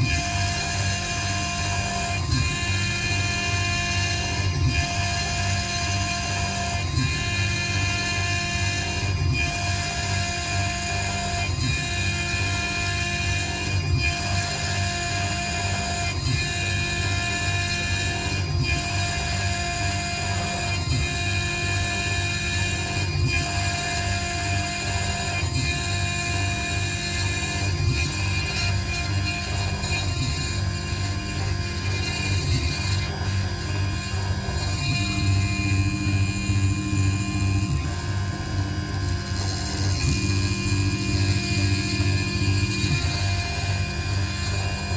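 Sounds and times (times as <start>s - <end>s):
grinding machine spindle whine: 0.0s - 44.9s.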